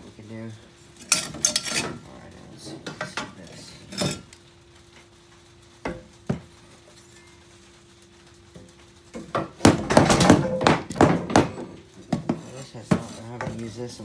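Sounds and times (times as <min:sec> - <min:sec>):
metal tools clanking: 0:01.0 - 0:02.1, 0:03.0 - 0:04.4.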